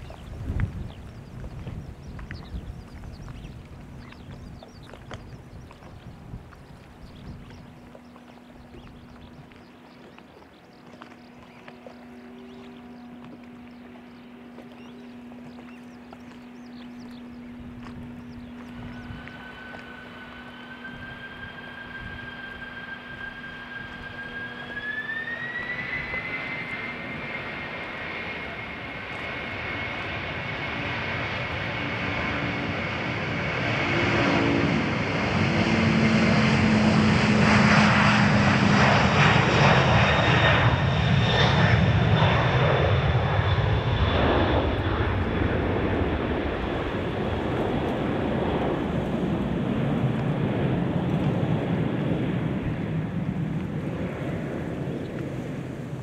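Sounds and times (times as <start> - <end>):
jet airliner roaring past: 0.0 - 56.0
jet engines spooling up: 11.3 - 56.0.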